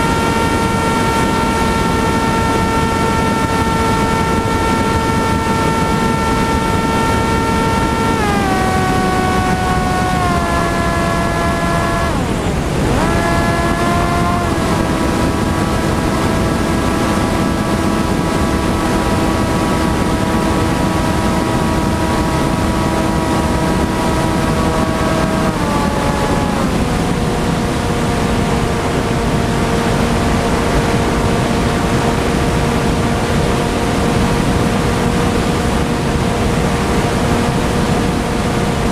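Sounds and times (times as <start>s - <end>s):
electric motor propeller whine: 0.0s - 38.9s
wind rush: 0.0s - 38.9s.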